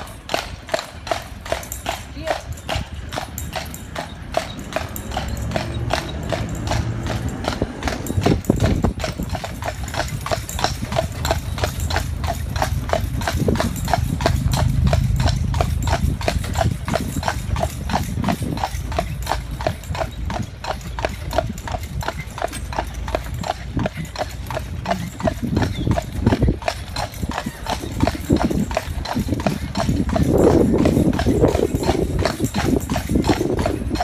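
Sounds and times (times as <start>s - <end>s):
horse hooves clip-clopping on road: 0.0s - 34.0s
low rumble: 10.9s - 19.6s.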